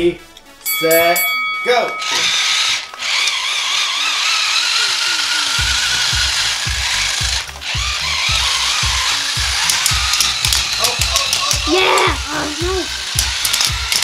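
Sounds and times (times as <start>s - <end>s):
toy robot motors whirring: 2.0s - 14.0s
gear clatter: 13.1s - 14.0s.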